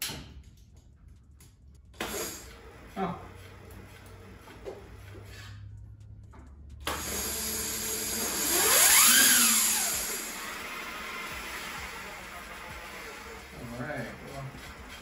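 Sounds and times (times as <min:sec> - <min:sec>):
electric motor whine: 0:06.8 - 0:15.0.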